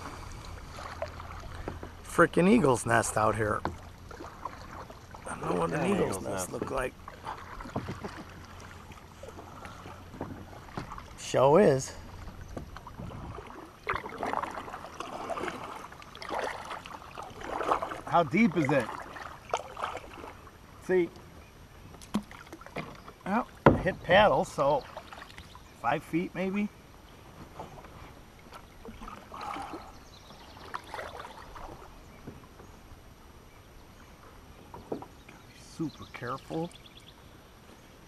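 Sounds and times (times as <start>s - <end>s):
paddle splashing in water: 0.0s - 25.9s, 27.1s - 32.9s
water dripping off paddle: 12.0s - 20.4s, 21.9s - 23.8s, 30.6s - 31.9s.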